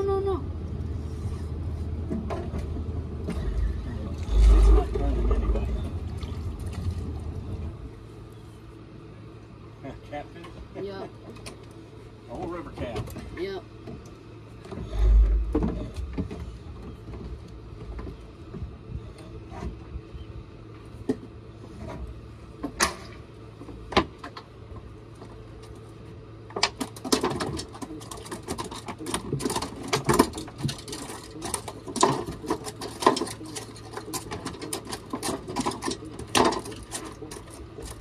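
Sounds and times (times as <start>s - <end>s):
clattering rattle: 26.7s - 38.0s.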